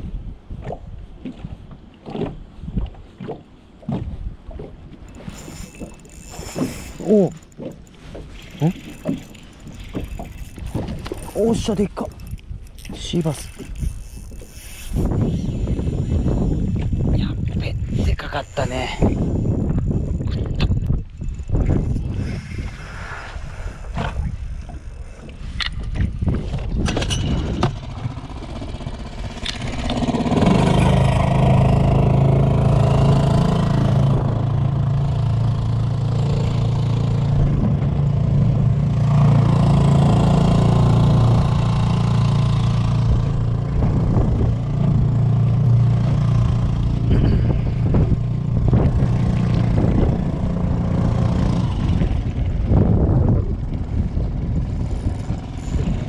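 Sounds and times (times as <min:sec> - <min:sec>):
boat motor running: 0:00.6 - 0:22.3, 0:24.0 - 0:56.0
fishing gear clicks and knocks: 0:03.2 - 0:15.6.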